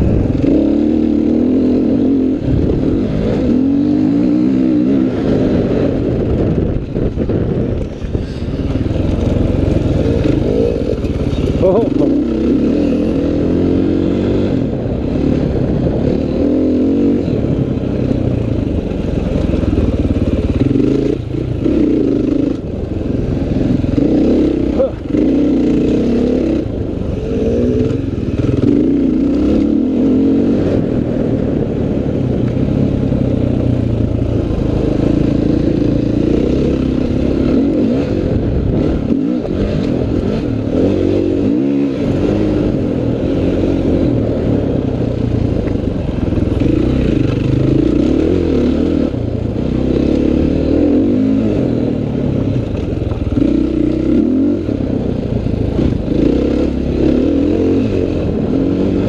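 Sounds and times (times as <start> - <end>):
motocross bike engine revving: 7.8 - 17.6, 18.8 - 31.5, 55.7 - 59.0.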